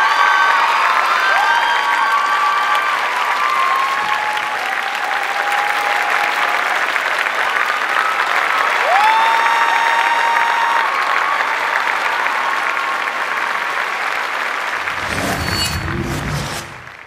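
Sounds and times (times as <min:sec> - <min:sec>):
audience applauding: 0:00.0 - 0:14.8.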